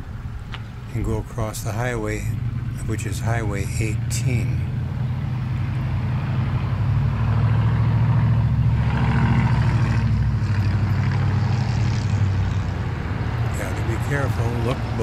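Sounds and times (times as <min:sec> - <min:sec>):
cars driving past: 0:00.0 - 0:15.0
low engine rumble: 0:00.0 - 0:15.0.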